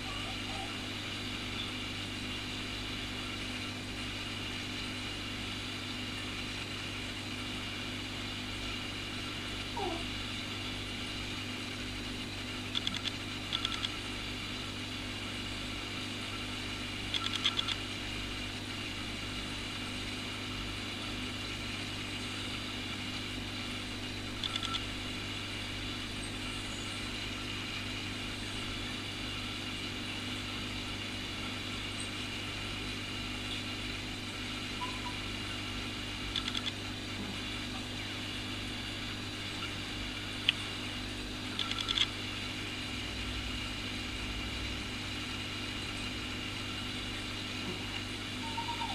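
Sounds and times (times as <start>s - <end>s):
aquarium pump humming: 0.0s - 48.9s
quick clicks: 12.7s - 14.0s, 17.1s - 17.8s, 24.4s - 24.9s, 36.3s - 36.8s, 41.6s - 42.1s.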